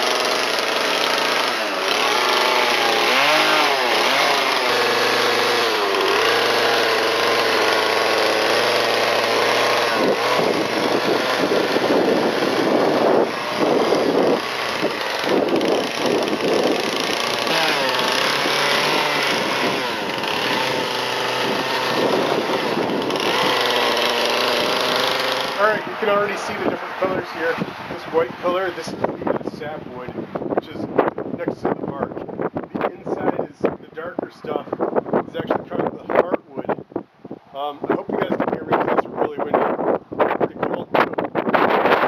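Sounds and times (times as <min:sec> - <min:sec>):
chainsaw cutting wood: 0:00.0 - 0:29.1, 0:41.0 - 0:42.0.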